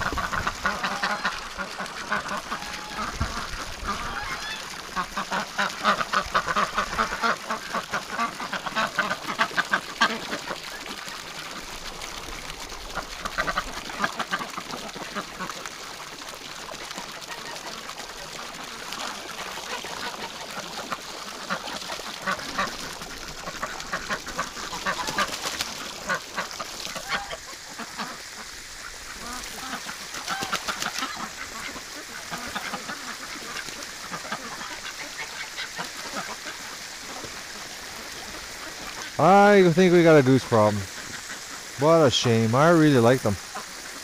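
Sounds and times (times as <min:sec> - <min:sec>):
geese honking: 0:00.0 - 0:10.4, 0:26.0 - 0:36.6
ducks quacking: 0:00.0 - 0:11.2, 0:12.9 - 0:15.6, 0:17.0 - 0:44.0.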